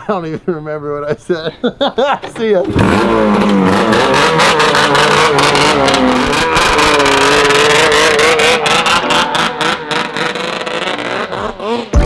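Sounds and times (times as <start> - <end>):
snowmobile engine revving hard: 2.7 - 12.0.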